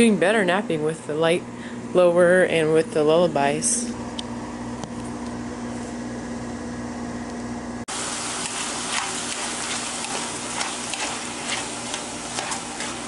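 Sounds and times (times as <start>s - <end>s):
steady low hum: 0.0s - 13.0s
food sizzling in a skillet: 7.9s - 13.0s
spatula scraping a skillet: 8.4s - 13.0s.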